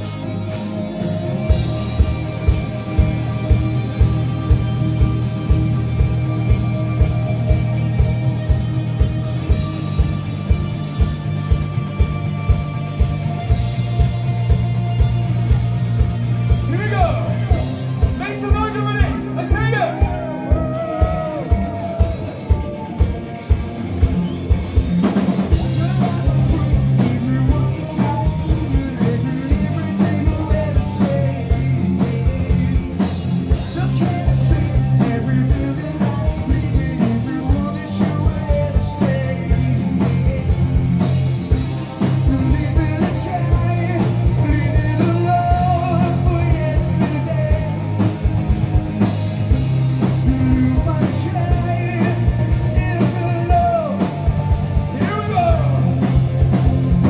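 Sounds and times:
bass guitar: 0.0 - 57.0
distorted electric guitar: 0.0 - 57.0
drum kit: 0.0 - 57.0
person singing: 25.5 - 41.0, 50.0 - 56.1.

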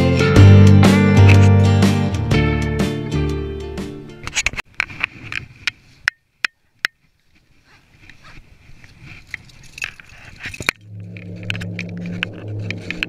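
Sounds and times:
climbing gear rustling and clinking: 8.8 - 12.9
low hum with clicks: 10.6 - 13.0.

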